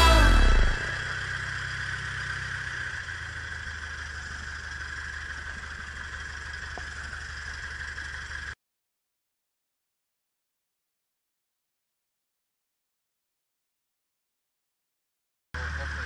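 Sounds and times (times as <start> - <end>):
aircraft engine and propeller drone: 0.0 - 8.6, 15.6 - 16.0.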